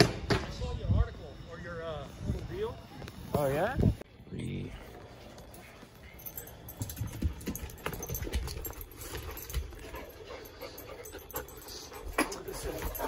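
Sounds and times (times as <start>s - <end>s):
dog panting: 6.2s - 13.0s.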